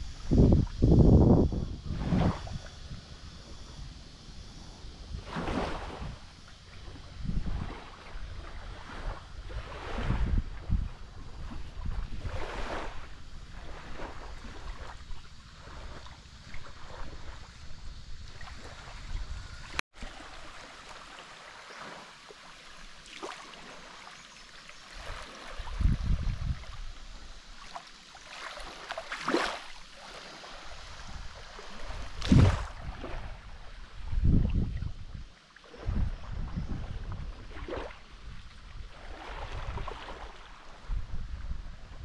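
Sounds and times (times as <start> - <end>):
wind buffeting microphone: 0.0 - 19.8, 25.6 - 27.1, 30.8 - 42.0
small waves on shore: 1.8 - 42.0.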